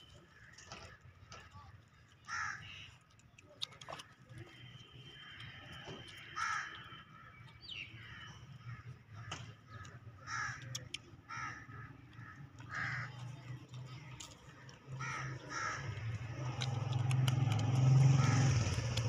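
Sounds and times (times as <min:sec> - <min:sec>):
harsh animal calls: 0:14.6 - 0:19.0.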